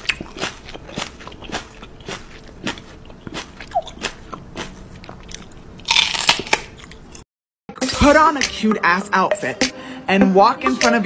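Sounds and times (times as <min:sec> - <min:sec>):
crunchy food being chewed: 0:00.0 - 0:07.2.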